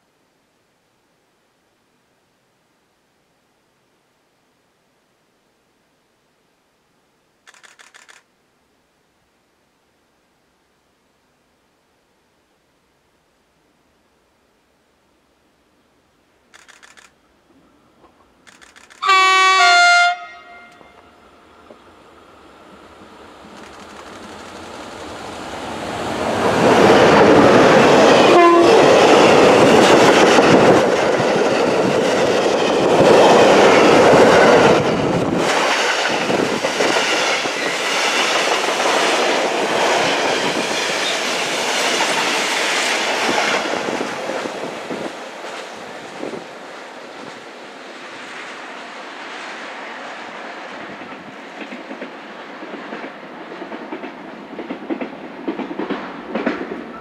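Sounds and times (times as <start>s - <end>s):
freight train rumble: 18.8s - 57.0s
two-note train horn: 19.0s - 21.3s, 28.3s - 28.8s.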